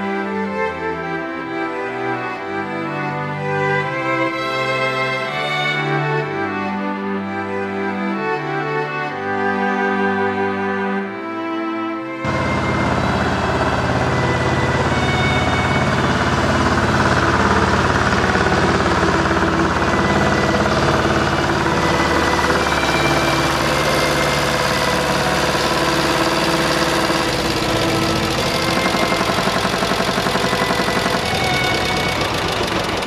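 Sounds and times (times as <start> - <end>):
diesel engine running: 12.2 - 33.0.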